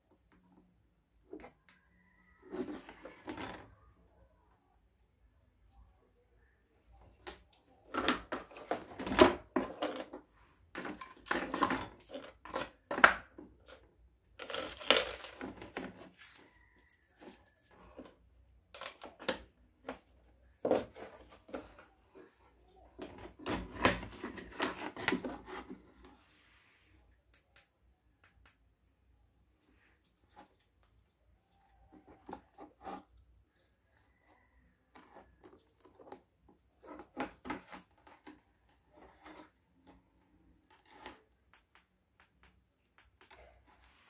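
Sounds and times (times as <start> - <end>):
plastic parts clicking and rubbing: 7.1 - 16.2.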